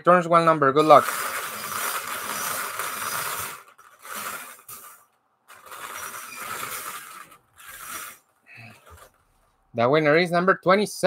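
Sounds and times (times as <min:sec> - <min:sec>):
balls rattling in wire bingo cage: 0:00.8 - 0:09.3.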